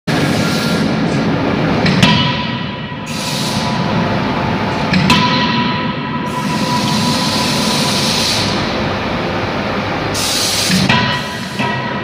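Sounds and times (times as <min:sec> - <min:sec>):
machine running: 0:00.1 - 0:12.0
metallic ring: 0:05.0 - 0:08.7.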